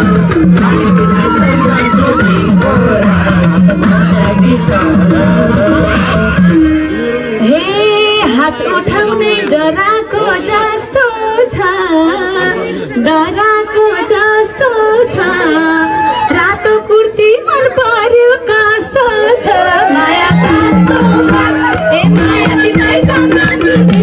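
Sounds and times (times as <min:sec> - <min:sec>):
musical accompaniment: 0:00.0 - 0:08.8, 0:19.8 - 0:24.0.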